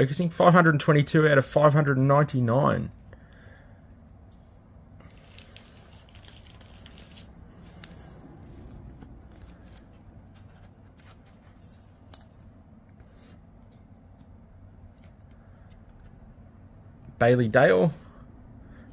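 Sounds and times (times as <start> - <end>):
card rustling and clicking: 5.0 - 16.9.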